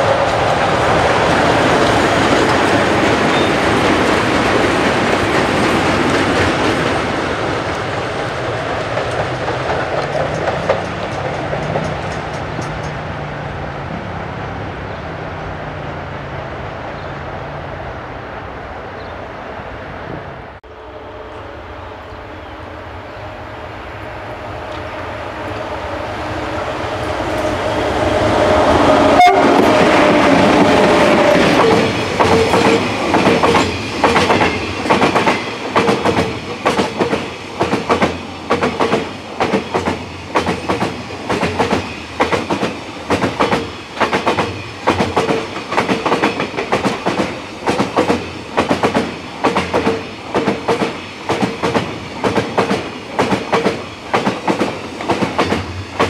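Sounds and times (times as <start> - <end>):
wheels clacking over rail joints: 0.0 - 13.4, 29.1 - 56.0
electric locomotive passing: 0.0 - 56.0.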